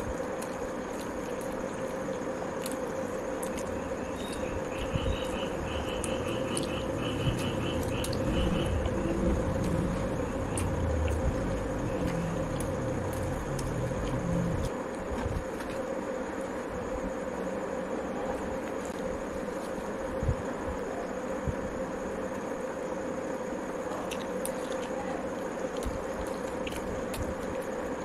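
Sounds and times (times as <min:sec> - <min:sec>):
background hum: 0:00.0 - 0:28.0
chewing with mouth clicks: 0:06.0 - 0:14.7, 0:23.9 - 0:25.0, 0:25.7 - 0:27.7.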